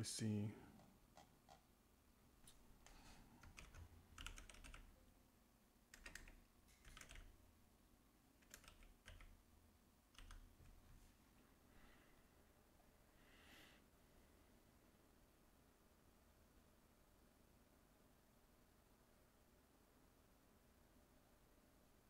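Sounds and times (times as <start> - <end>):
faint keyboard typing: 0.7 - 1.7, 2.5 - 5.0, 5.9 - 7.5, 8.4 - 9.4, 10.1 - 11.0.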